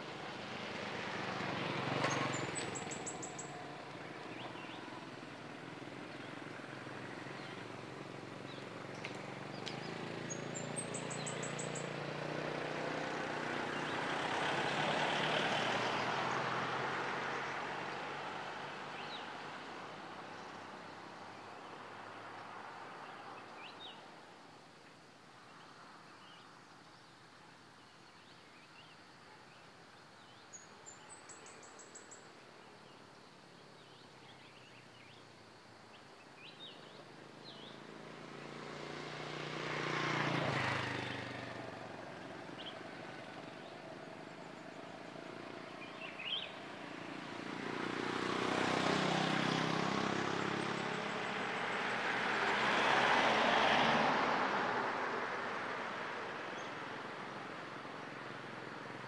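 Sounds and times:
motorbike engines passing: 0:00.0 - 0:23.9, 0:36.6 - 0:59.0.

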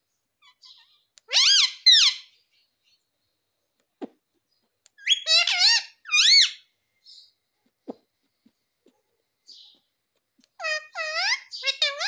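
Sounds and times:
parakeet calling: 0:00.4 - 0:02.4, 0:04.9 - 0:07.3, 0:09.5 - 0:12.0.

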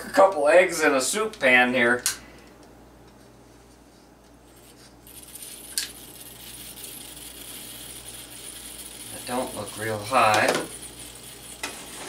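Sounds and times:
camp stove hissing: 0:07.7 - 0:12.0.

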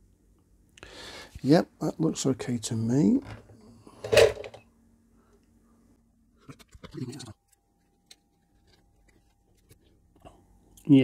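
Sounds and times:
faint clicks and scratching: 0:06.4 - 0:10.8.

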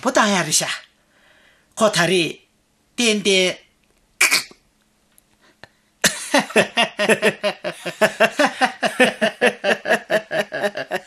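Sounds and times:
hearty human laughter: 0:06.1 - 0:11.0.

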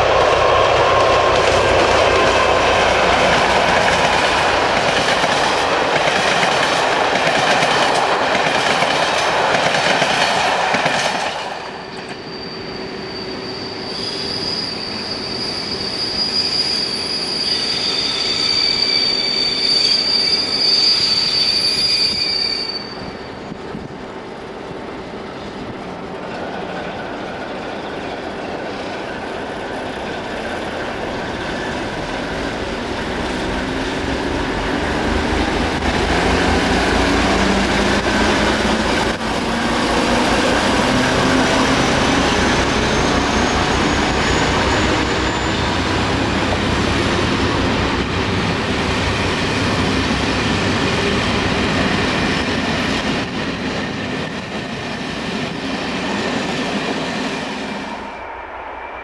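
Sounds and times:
diesel locomotive engine: 0:00.0 - 0:59.0
high steady wheel squeal: 0:11.6 - 0:23.6, 0:39.4 - 0:47.8, 0:57.3 - 0:59.0.

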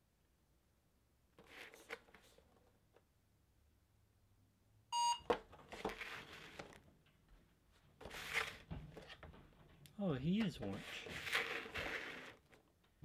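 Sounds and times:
short electronic beep: 0:05.0 - 0:05.2.

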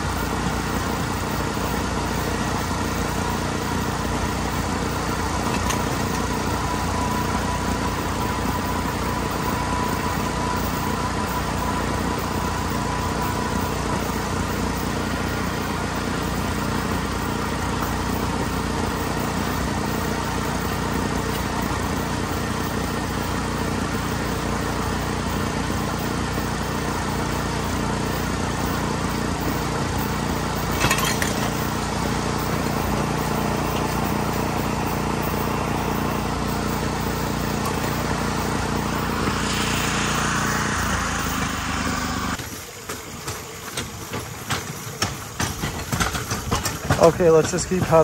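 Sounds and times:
small gasoline engine running: 0:00.0 - 0:48.0
wheels clicking over rail joints: 0:00.0 - 0:48.0
wheels rolling on rail track: 0:00.0 - 0:48.0.

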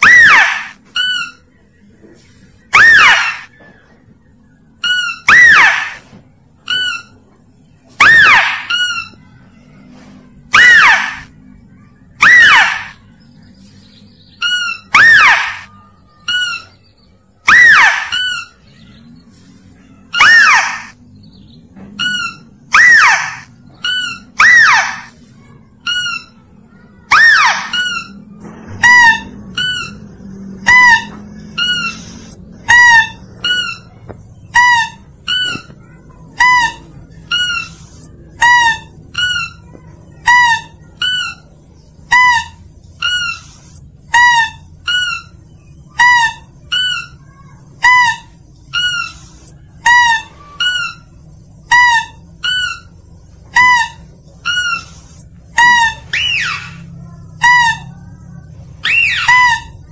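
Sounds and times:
squeaky lure calls: 0:00.0 - 0:01.5, 0:02.7 - 0:03.6, 0:04.8 - 0:07.2, 0:08.0 - 0:09.4, 0:10.5 - 0:11.3, 0:12.2 - 0:13.0, 0:14.4 - 0:18.8, 0:19.9 - 0:21.0, 0:22.0 - 0:59.9
falling squeal: 0:00.0 - 0:01.6, 0:02.6 - 0:04.0, 0:04.7 - 0:13.1, 0:14.4 - 0:21.0, 0:22.0 - 0:59.9.

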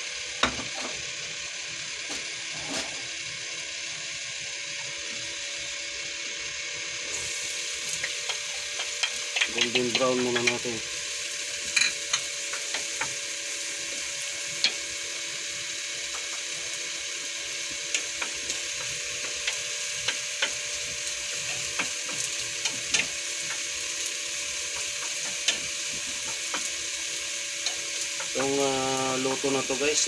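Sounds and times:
garlic sizzling in hot oil: 0:00.0 - 0:30.0
spatula scraping and tapping pan: 0:19.2 - 0:20.6, 0:21.5 - 0:23.7, 0:24.7 - 0:26.7.

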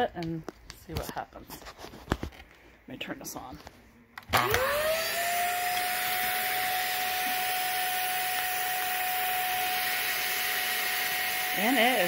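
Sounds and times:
vacuum cleaner running: 0:04.3 - 0:12.0.

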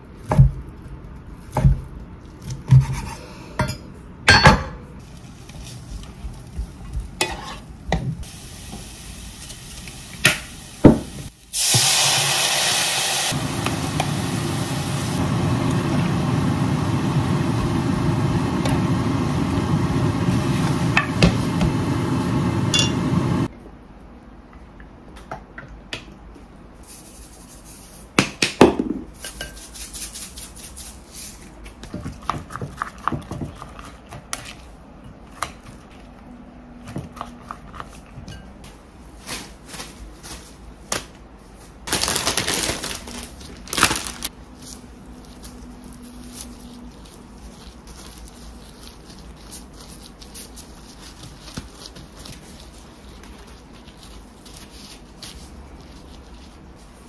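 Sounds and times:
spoon scraping a glass bowl: 0:07.2 - 0:07.6
food sizzling in a frying pan: 0:08.2 - 0:23.5
plastic bag rustling: 0:38.9 - 0:57.0.

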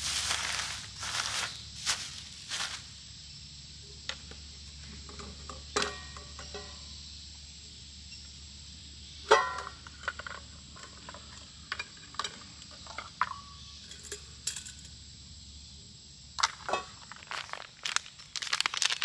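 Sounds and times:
high-pitched insect drone: 0:00.0 - 0:04.0.

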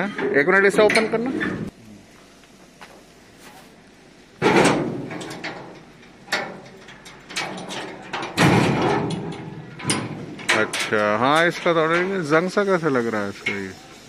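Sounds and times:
metal tailgate latches clanking: 0:04.4 - 0:11.6.

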